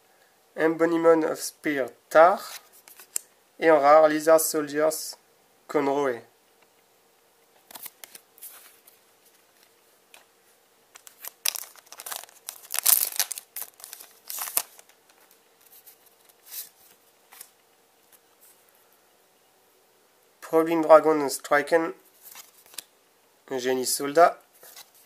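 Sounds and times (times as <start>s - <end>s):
wrapper tearing and rustling: 11.0s - 17.5s.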